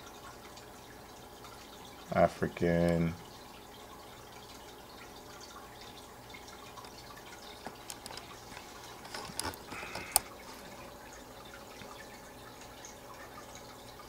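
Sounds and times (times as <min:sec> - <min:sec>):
water trickling and dripping: 0:00.0 - 0:14.0
small clicks: 0:06.8 - 0:10.3.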